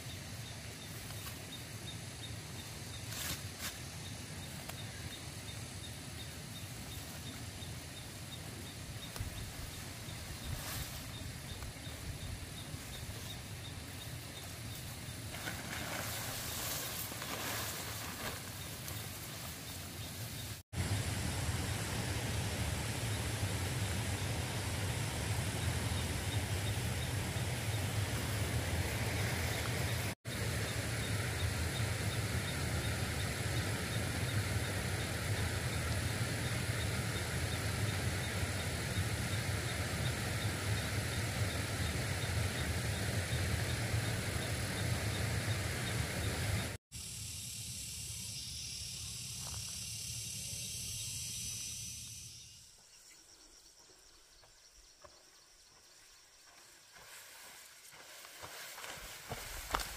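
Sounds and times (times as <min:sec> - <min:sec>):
hiss with high-pitched bands: 0:05.2 - 0:52.8.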